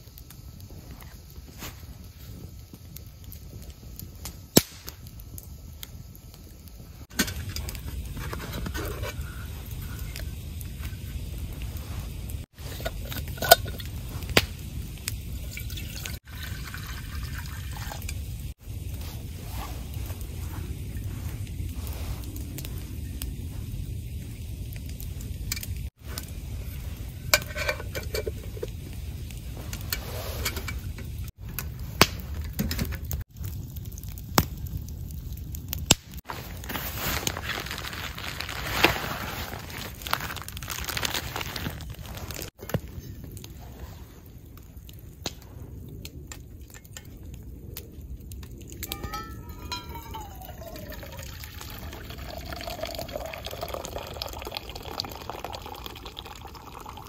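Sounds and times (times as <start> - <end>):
metal cookware clinking: 27.4 - 28.8, 48.9 - 51.1.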